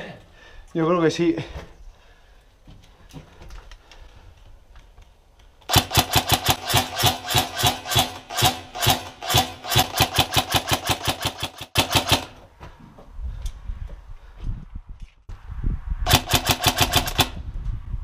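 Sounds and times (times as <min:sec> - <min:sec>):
airsoft gun rapid firing: 0:05.7 - 0:12.4, 0:16.1 - 0:17.4.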